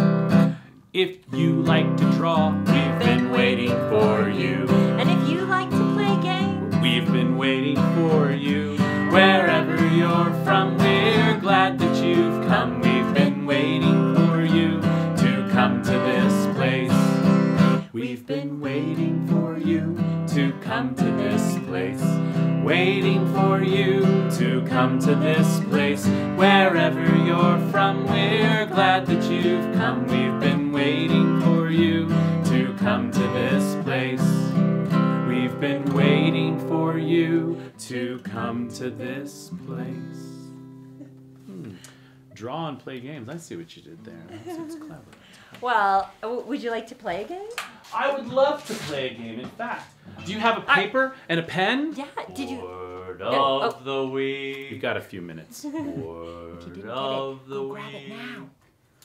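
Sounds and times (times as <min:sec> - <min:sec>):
acoustic guitar strumming: 0:00.0 - 0:00.7, 0:01.4 - 0:43.0, 0:55.8 - 0:58.5
man and woman singing: 0:01.0 - 0:40.6, 0:50.1 - 0:58.6.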